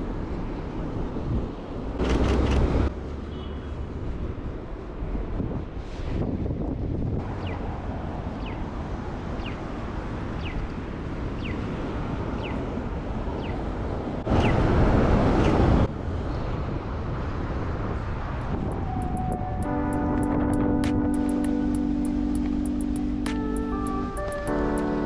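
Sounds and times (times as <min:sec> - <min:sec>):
traffic: 0:00.0 - 0:25.0
wind on microphone: 0:04.2 - 0:07.6, 0:14.2 - 0:21.3.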